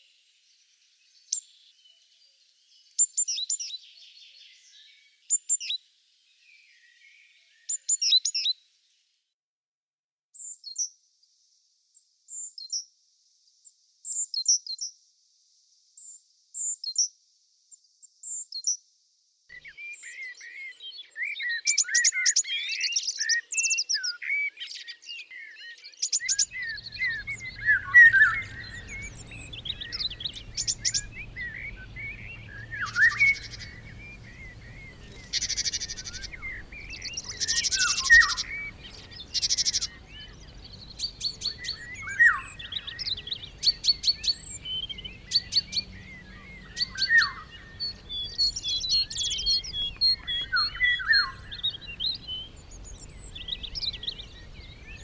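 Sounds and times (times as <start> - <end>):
songbirds singing: 19.5 - 55.0
faint low rumble: 26.5 - 55.0.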